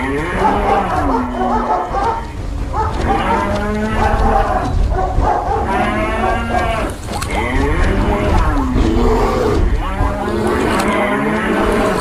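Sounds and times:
cattle mooing: 0.0 - 1.8, 5.6 - 12.0
steady low rumble: 0.0 - 12.0.

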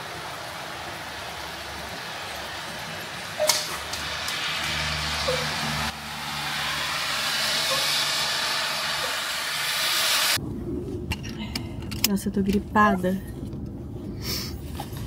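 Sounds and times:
rushing hiss: 0.0 - 10.4.

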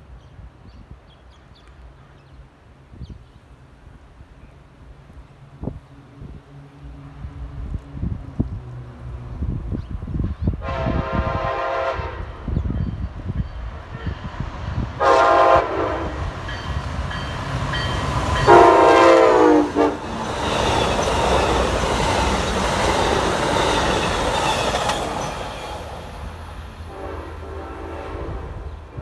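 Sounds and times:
train cars rushing on rails: 4.9 - 29.0
train horn: 10.6 - 12.6, 15.0 - 16.7, 17.8 - 21.7, 26.8 - 29.0.

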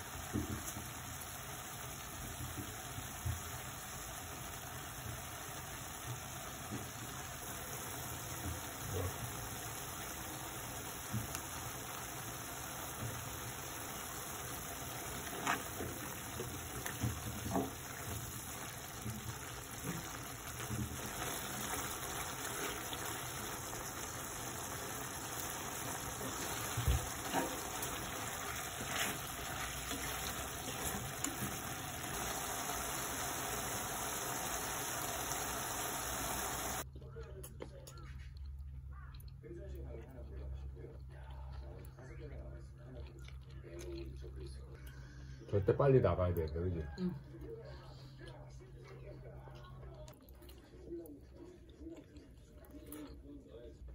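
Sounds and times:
stir-fry sizzling in a frying pan: 0.0 - 36.9
wooden spoon scraping a pan: 15.0 - 18.4, 26.1 - 32.1.

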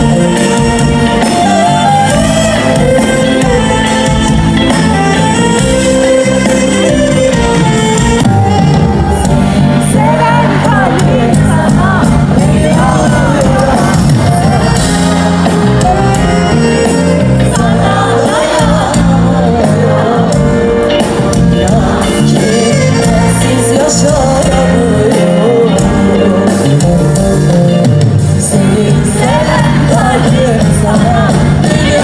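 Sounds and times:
live pop band playing: 0.0 - 32.0
woman singing into a microphone: 9.2 - 27.3, 28.4 - 32.0.

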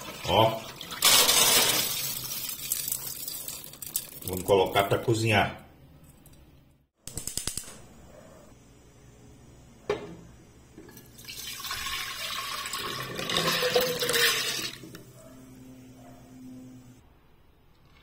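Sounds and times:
water pouring into pot: 0.0 - 4.5, 10.9 - 14.8.

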